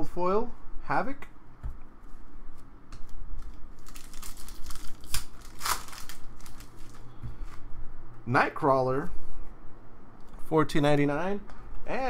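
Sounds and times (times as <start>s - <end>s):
foil wrapper crinkling: 3.4s - 7.1s.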